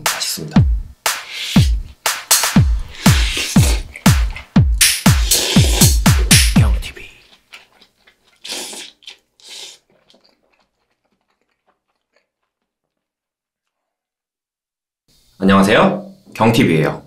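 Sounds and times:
crunching bites of food: 7.2s - 13.9s.

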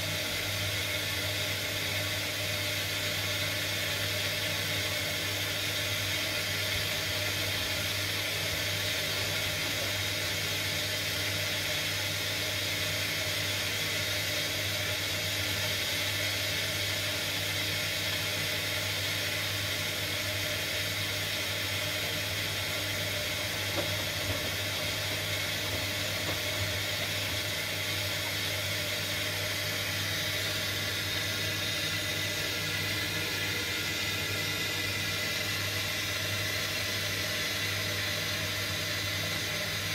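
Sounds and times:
washing machine motor hum: 0.0s - 39.9s.

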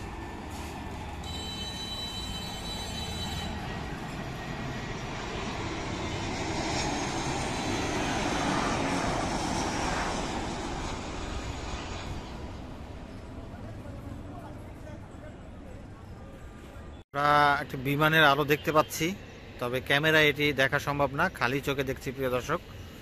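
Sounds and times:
jet airliner landing: 0.0s - 23.0s.

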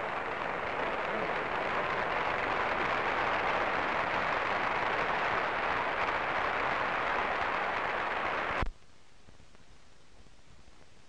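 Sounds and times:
large crowd applauding: 0.0s - 8.7s
faint hiss: 0.0s - 11.0s.

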